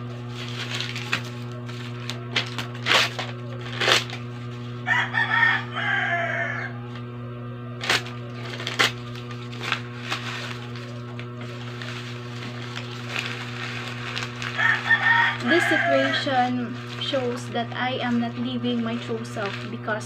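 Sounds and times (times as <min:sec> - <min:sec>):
paper tearing and rustling: 0:00.0 - 0:04.6, 0:07.8 - 0:20.0
steady low hum: 0:00.0 - 0:20.0
rooster crowing: 0:04.8 - 0:06.9, 0:14.4 - 0:16.8.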